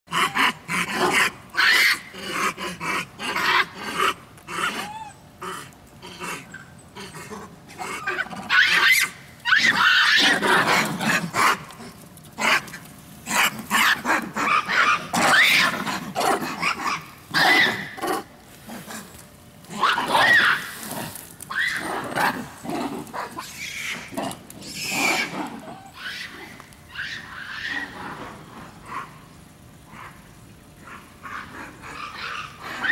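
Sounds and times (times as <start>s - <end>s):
monkeys grunting and barking: 0.1s - 29.3s, 29.9s - 32.9s.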